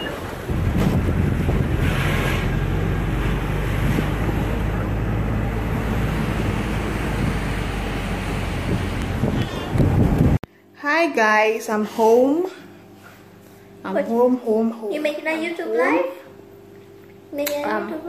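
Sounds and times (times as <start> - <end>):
engine and road noise drone: 0.0 - 10.5
wind noise on microphone: 0.4 - 4.6, 5.9 - 10.4.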